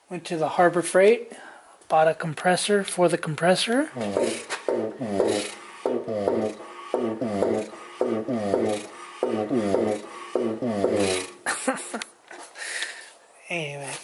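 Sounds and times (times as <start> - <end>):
compressor pump rasping squawk: 4.0 - 11.4.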